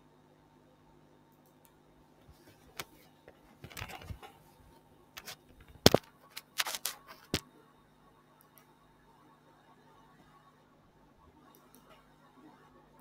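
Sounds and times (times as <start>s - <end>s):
sharp clicks and knocks: 5.2s - 7.4s.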